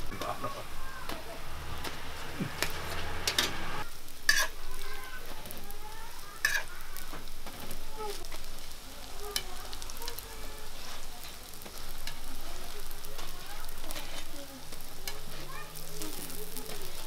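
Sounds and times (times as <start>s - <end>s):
pancake sizzling in oil: 0.0s - 17.0s
metal spatula clicks and scrapes: 4.3s - 5.6s, 6.4s - 6.7s, 7.4s - 17.0s.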